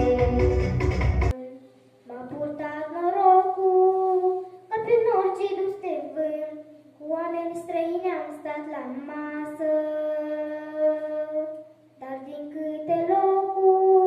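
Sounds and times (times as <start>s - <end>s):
girl singing folk song: 0.0s - 0.7s, 1.3s - 14.0s.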